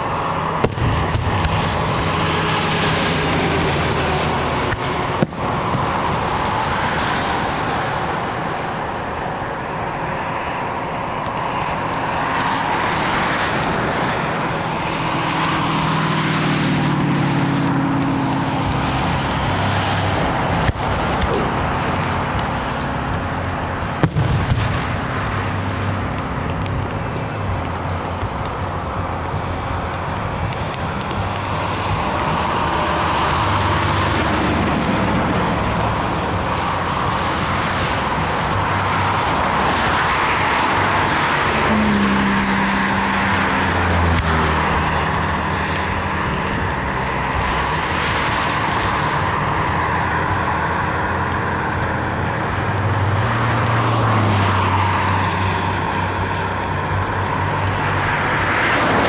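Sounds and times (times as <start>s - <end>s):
car road and engine noise: 0.0s - 59.0s
fireworks bangs: 0.3s - 10.2s, 11.7s - 41.3s.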